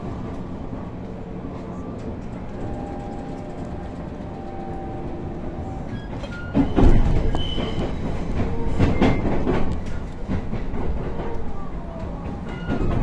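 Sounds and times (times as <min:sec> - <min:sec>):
train running noise: 0:00.0 - 0:13.0
train wheels clunking: 0:00.0 - 0:13.0
train wheels squealing: 0:02.5 - 0:10.1, 0:11.2 - 0:13.0.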